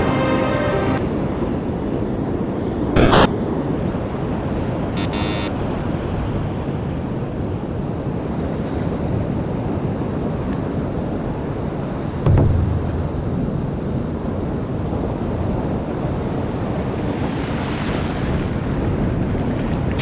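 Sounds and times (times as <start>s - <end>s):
buzzy burst: 5.0s - 5.5s
surf washing on beach: 16.1s - 20.0s.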